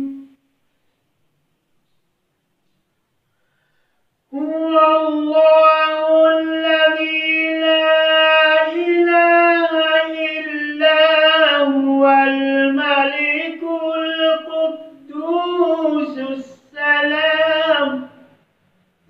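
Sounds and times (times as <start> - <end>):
man chanting melodically: 4.3 - 18.3.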